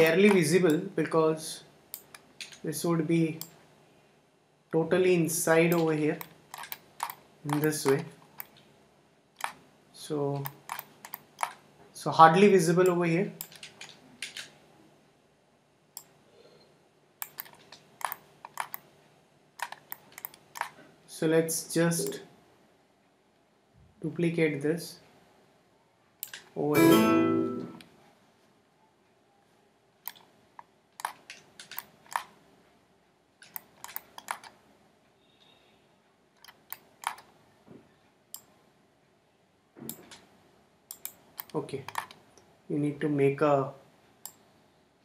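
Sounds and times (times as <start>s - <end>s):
mouse and keyboard clicks: 0.0s - 0.8s, 2.0s - 2.7s, 5.7s - 8.7s, 9.4s - 9.6s, 10.4s - 11.6s, 17.2s - 18.9s, 19.6s - 20.8s, 30.0s - 32.4s, 33.4s - 34.6s, 36.4s - 37.3s, 40.9s - 42.2s.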